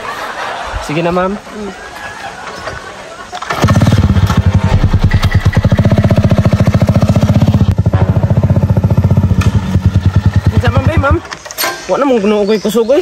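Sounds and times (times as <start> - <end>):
small motorcycle engine idling: 3.5 - 11.3.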